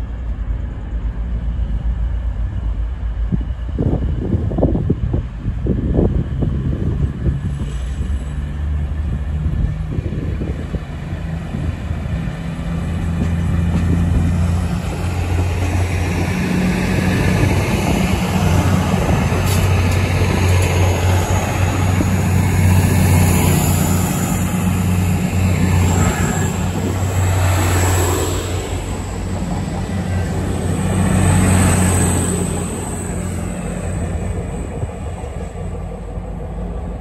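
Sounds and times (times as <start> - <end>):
diesel train passing: 0.0 - 37.0.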